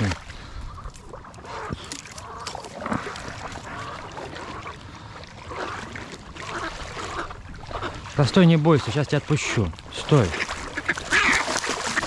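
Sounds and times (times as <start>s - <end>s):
duck struggling in water: 0.0s - 8.3s, 10.0s - 12.0s
splashing in shallow marsh water: 0.0s - 12.0s.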